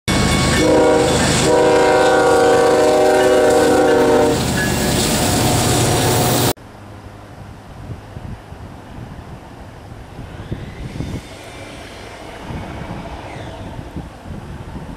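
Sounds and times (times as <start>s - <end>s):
outdoor background noise: 0.1s - 14.9s
train rumble: 0.1s - 14.9s
locomotive air horn: 0.2s - 4.5s.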